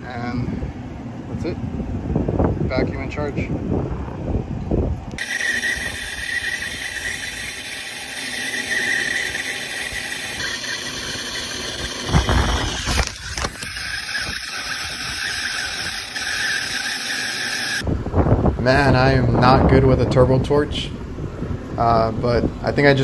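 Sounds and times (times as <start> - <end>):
torch flame hissing: 5.2 - 17.8.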